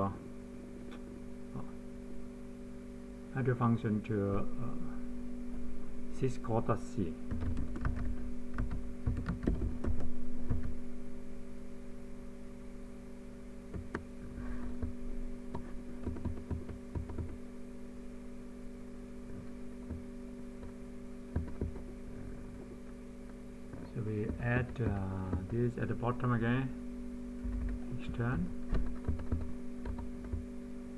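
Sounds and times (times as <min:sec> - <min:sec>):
steady electrical hum: 0:00.0 - 0:30.9
computer keyboard keys clicking: 0:07.3 - 0:10.7, 0:15.5 - 0:17.4, 0:21.4 - 0:21.8, 0:28.8 - 0:30.4.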